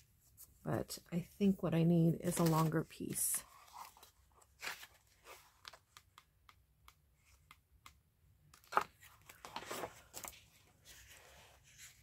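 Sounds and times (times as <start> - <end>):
paper rustling: 8.6 - 12.0.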